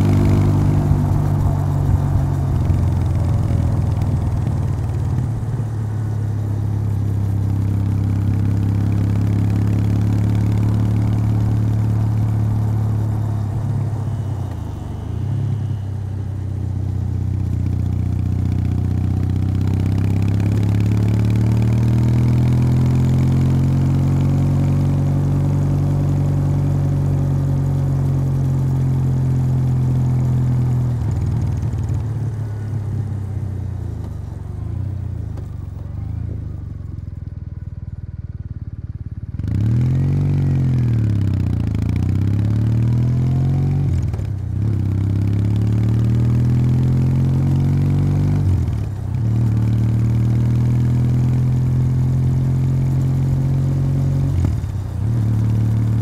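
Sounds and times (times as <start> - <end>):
motorcycle engine: 0.0 - 56.0.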